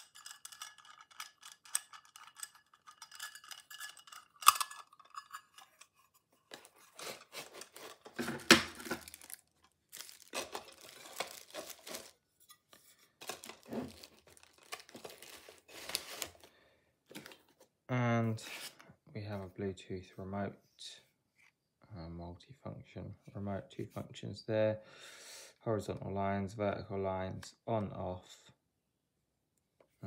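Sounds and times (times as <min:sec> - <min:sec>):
rustling in plastic case: 0:06.5 - 0:16.5.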